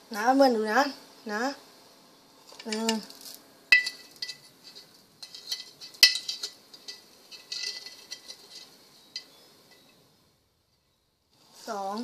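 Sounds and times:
spoon scraping: 2.5 - 10.0.

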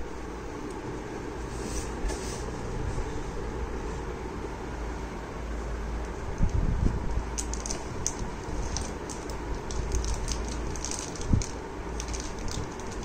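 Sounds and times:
plastic bag crinkling: 7.4 - 13.0.

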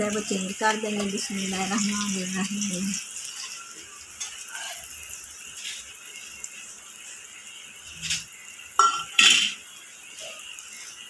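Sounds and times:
food sizzling in a pan: 0.0 - 11.0
metal spoon scraping a pan: 3.2 - 5.9, 8.0 - 9.6.

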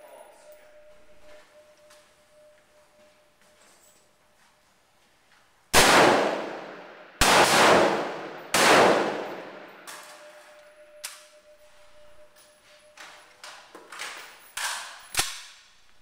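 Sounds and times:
rifle shots echoing indoors: 5.7 - 11.4, 13.4 - 15.9.

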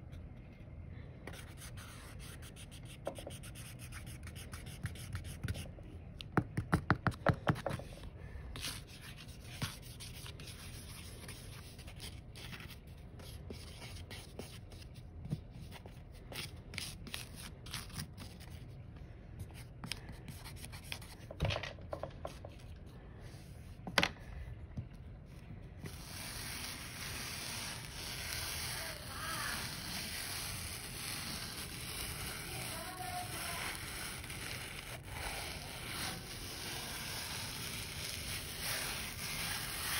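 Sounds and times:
pencil tapping in sand: 4.8 - 7.9
stone rubbing through sand: 25.8 - 39.9.

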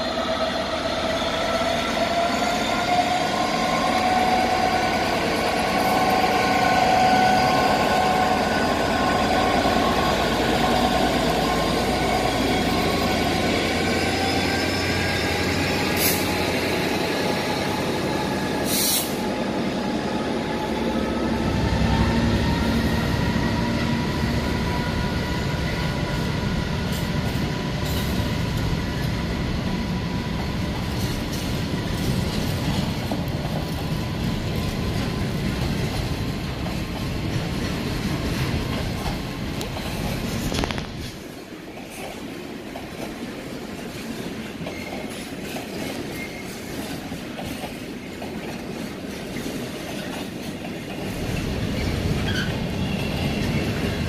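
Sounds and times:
diesel locomotive passing: 0.0 - 54.0
freight wagons rolling on rails: 30.3 - 54.0.

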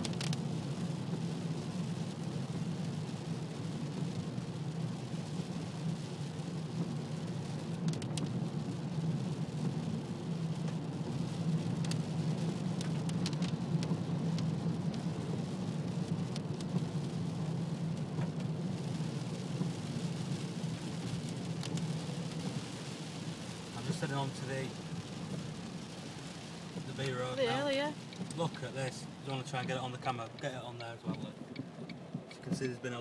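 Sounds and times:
car engine and tyres humming: 0.0 - 33.0
rain ticking on windscreen: 0.0 - 33.0.

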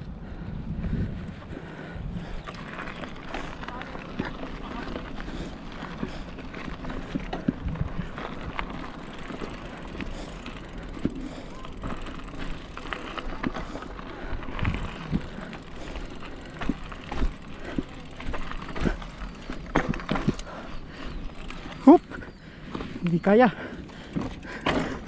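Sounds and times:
bike tyres crunching on gravel: 2.2 - 25.0
bike knocks and rattles: 14.5 - 20.6, 23.9 - 25.0.

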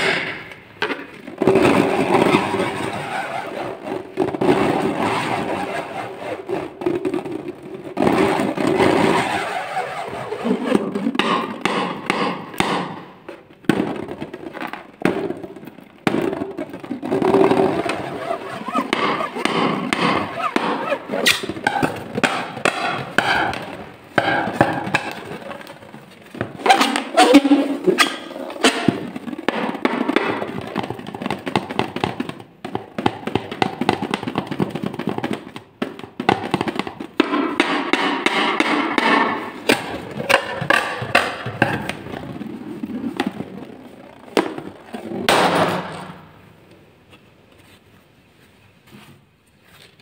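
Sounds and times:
hands rubbing a balloon: 1.6 - 12.1, 16.4 - 30.2
sharp taps on balloon: 11.1 - 13.9, 16.0 - 25.3.

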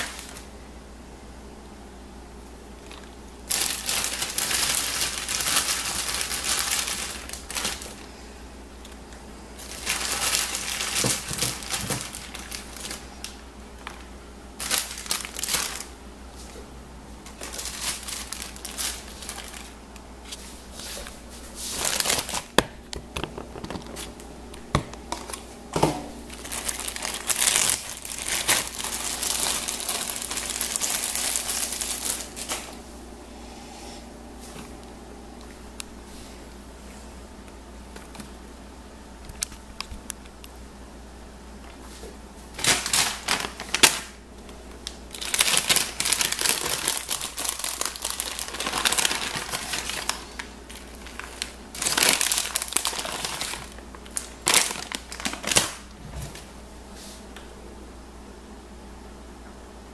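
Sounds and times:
plastic bags crinkling: 0.0 - 0.5, 2.8 - 9.0, 9.6 - 16.0, 17.2 - 25.6, 26.2 - 32.8, 42.5 - 56.0.

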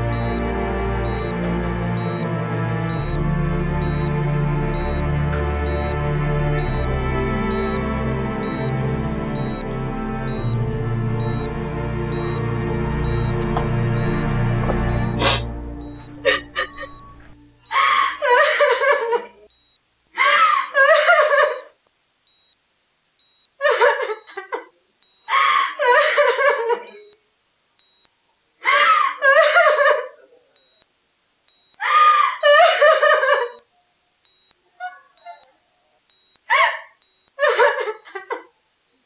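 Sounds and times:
patient monitor beeps: 0.0 - 1.4, 2.0 - 2.3, 2.9 - 4.2, 4.8 - 5.1, 5.7 - 6.0, 6.6 - 6.9, 7.5 - 17.8, 19.5 - 19.8, 22.3 - 22.6, 23.2 - 23.5, 24.1 - 25.3, 27.8 - 28.1, 30.6 - 30.9, 31.5 - 31.8, 33.4 - 33.7, 34.3 - 34.6, 35.2 - 35.5, 36.1 - 36.4, 37.0 - 37.4
music: 0.0 - 17.7
woman sobbing: 16.2 - 19.5, 20.2 - 21.7, 23.6 - 24.7, 25.3 - 27.2, 28.6 - 30.3, 31.8 - 33.7, 36.5 - 38.5.

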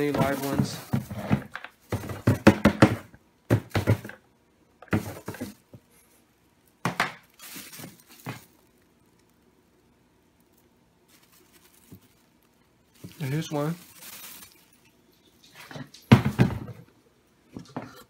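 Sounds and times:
plastic bag rustling: 0.0 - 2.6, 4.9 - 6.2, 7.0 - 9.4, 10.4 - 16.6
plastic bin knocked and shaken: 0.0 - 4.2, 4.8 - 5.6, 16.1 - 16.8.

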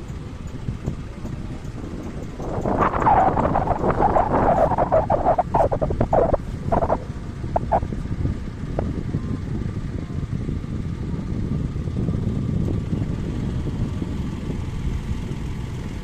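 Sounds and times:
boat engine rumble: 0.0 - 16.0
water rushing: 2.6 - 7.8.

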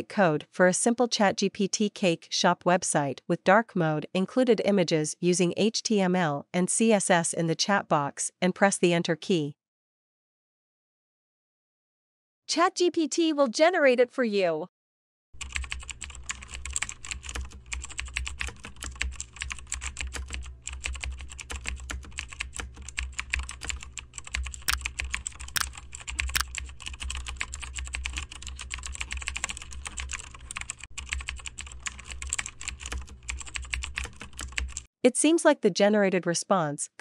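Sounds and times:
keyboard keystroke clicks: 15.4 - 34.8
steady low hum: 15.4 - 34.8.

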